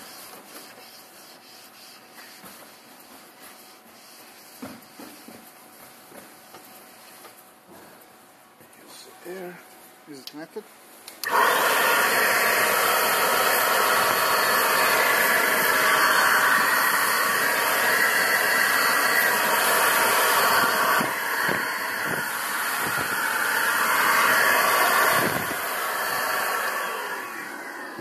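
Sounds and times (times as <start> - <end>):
compressed air hissing from nozzle: 11.2 - 27.5.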